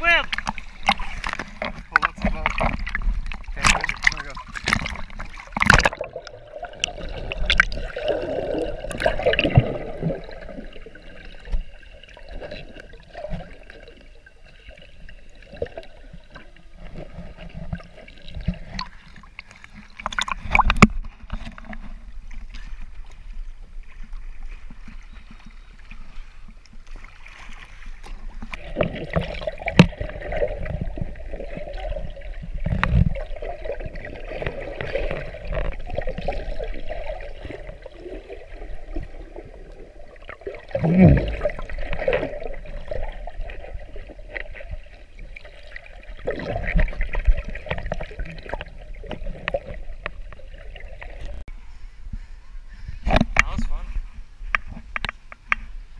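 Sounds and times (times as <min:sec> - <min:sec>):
sharp water splashes: 0:00.0 - 0:13.7
water gurgling and sloshing: 0:00.0 - 0:55.9.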